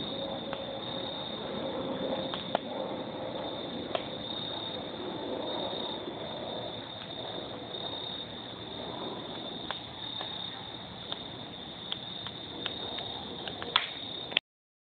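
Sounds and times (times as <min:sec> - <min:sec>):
wood fire crackling and popping: 0:00.0 - 0:04.8, 0:06.9 - 0:07.5, 0:09.3 - 0:10.4, 0:11.0 - 0:14.4
crickets chirping: 0:00.0 - 0:14.4.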